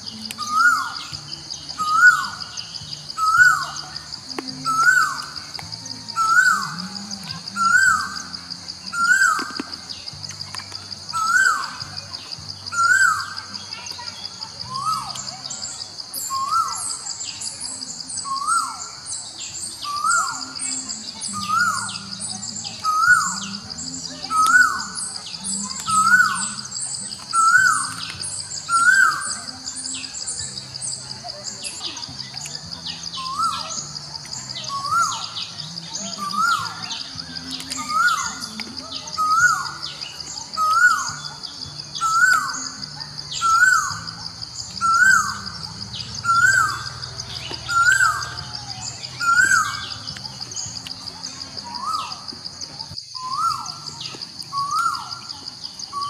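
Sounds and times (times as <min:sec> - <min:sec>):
soft background music: 0:00.0 - 0:56.0.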